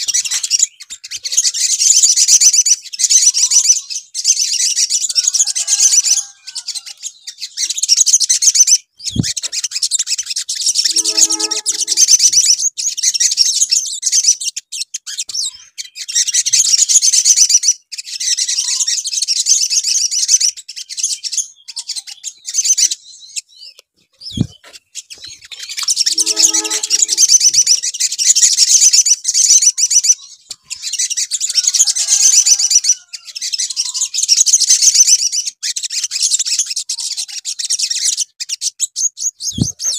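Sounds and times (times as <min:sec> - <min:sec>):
sunbird rattling trills: 0:25.8 - 0:27.8.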